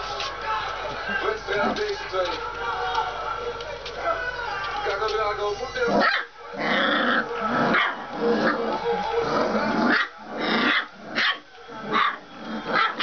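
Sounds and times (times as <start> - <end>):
puppies barking and yipping: 5.8 - 13.0
puppies growling: 5.8 - 13.0.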